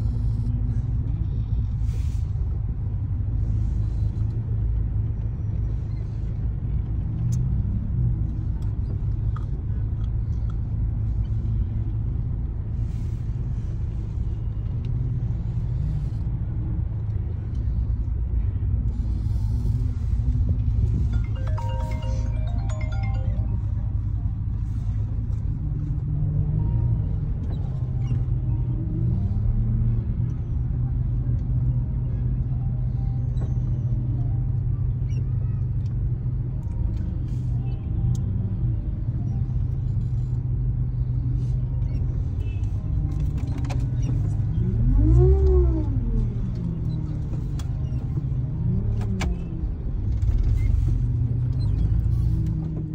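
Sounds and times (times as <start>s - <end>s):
road rumble: 0.0s - 52.9s
van engine revving: 38.3s - 52.9s.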